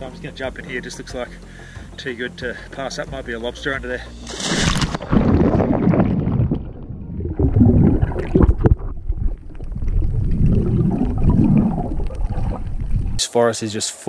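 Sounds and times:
water gurgling: 4.3s - 13.2s
muffled underwater rumble: 4.8s - 13.2s.

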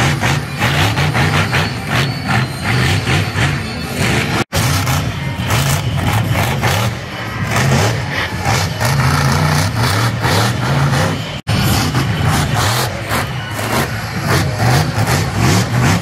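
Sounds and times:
monster truck engine revving: 0.0s - 16.0s.

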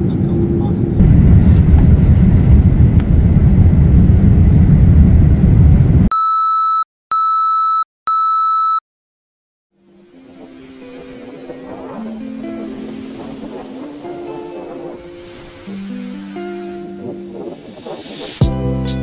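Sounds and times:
airliner cabin roar: 0.0s - 6.1s, 9.8s - 18.4s
test-tone beeps: 6.1s - 8.8s.

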